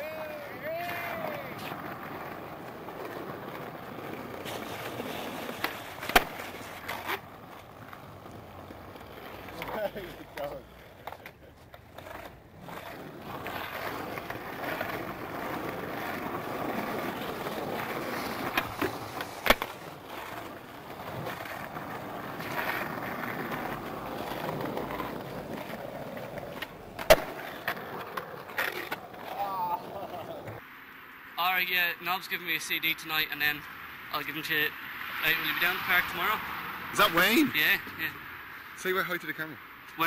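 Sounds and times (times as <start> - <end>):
skateboard clacking: 0.0 - 30.6
skateboard wheels rolling on concrete: 0.0 - 40.0.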